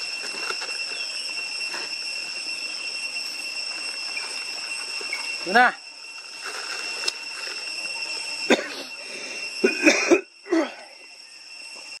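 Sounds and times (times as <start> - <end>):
high-pitched insect drone: 0.0 - 12.0
person coughing: 8.5 - 8.9, 9.6 - 10.7.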